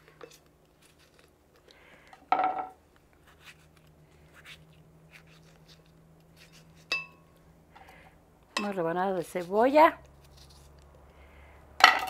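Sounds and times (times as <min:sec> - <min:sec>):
tomatoes squishing: 0:00.0 - 0:01.8, 0:03.0 - 0:06.9.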